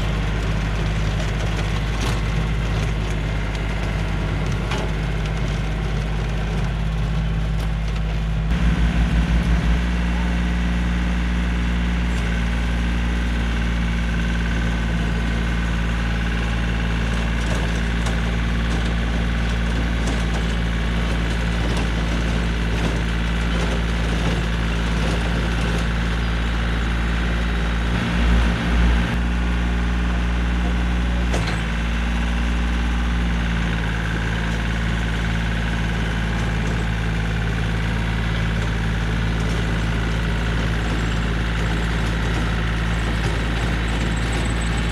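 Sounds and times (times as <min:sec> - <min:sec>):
rototiller tilling soil: 0:00.0 - 0:44.9
tractor diesel engine running: 0:00.0 - 0:44.9
low thumps: 0:08.3 - 0:12.0, 0:27.8 - 0:29.6.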